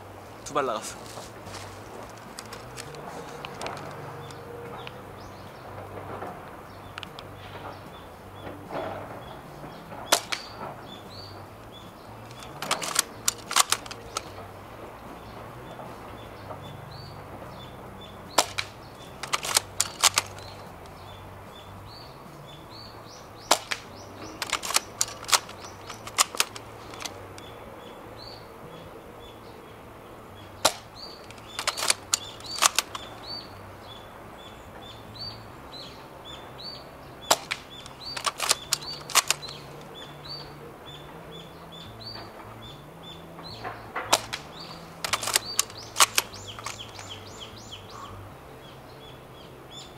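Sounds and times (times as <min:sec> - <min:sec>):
faint birds chirping: 0:00.0 - 0:49.9
airsoft rifle cracks and clacks: 0:00.5 - 0:05.0, 0:05.8 - 0:14.5, 0:18.3 - 0:21.2, 0:23.4 - 0:27.5, 0:30.6 - 0:33.4, 0:37.2 - 0:40.4, 0:43.6 - 0:47.6.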